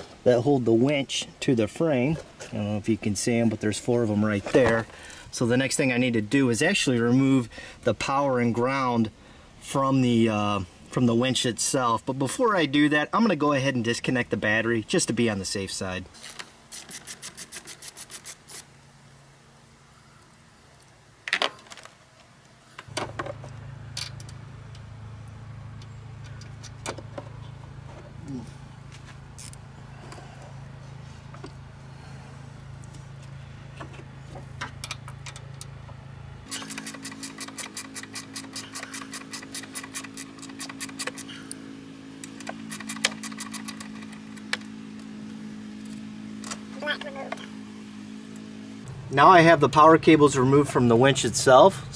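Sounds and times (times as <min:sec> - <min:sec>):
low steady hum: 0:17.8 - 0:51.9
socket ratchet clicking: 0:36.5 - 0:41.3, 0:42.2 - 0:44.5.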